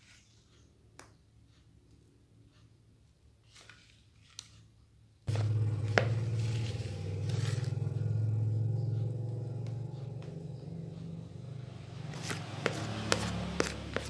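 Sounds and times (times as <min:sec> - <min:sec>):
low motor hum: 0:05.3 - 0:14.0.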